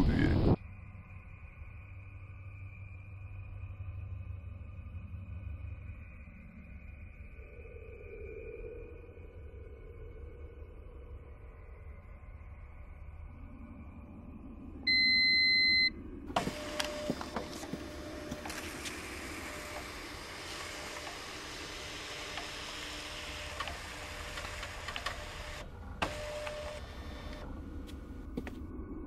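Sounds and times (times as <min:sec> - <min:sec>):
electronic beep: 0:14.9 - 0:16.0.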